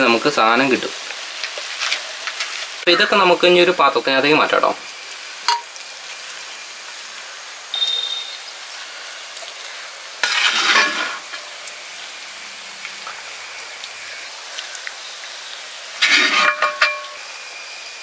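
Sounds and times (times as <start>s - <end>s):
food sizzling in pot: 0.0s - 18.0s
metal ladle scraping pot: 10.2s - 11.5s, 16.0s - 17.2s.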